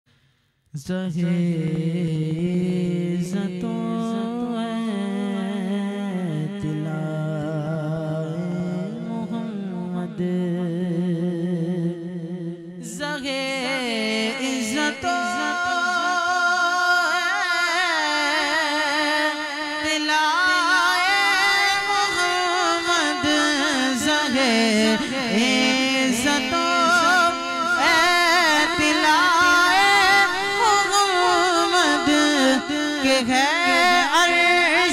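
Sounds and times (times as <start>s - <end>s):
man singing unaccompanied: 0.7s - 34.9s.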